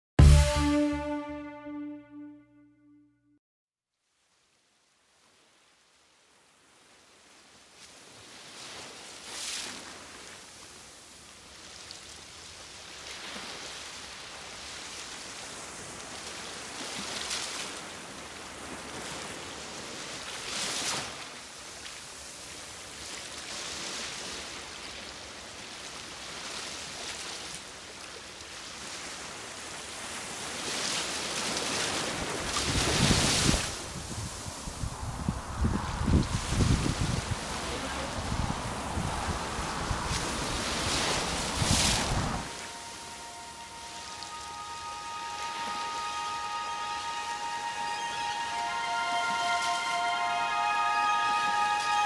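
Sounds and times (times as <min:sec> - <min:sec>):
surf hissing: 0:36.0 - 0:52.0.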